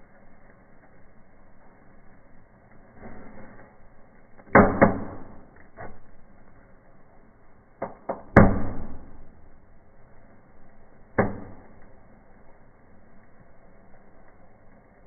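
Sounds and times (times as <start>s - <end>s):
firework pops and cracks: 4.2s - 6.5s, 11.1s - 12.0s.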